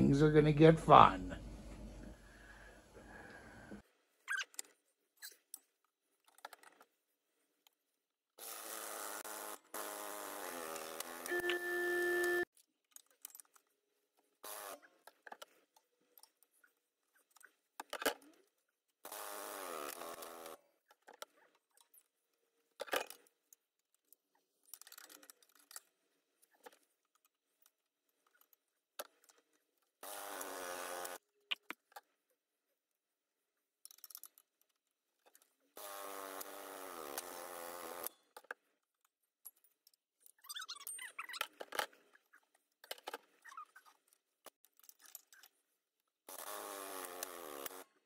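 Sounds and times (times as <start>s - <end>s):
hydraulic press buzzing: 8.5s - 12.4s.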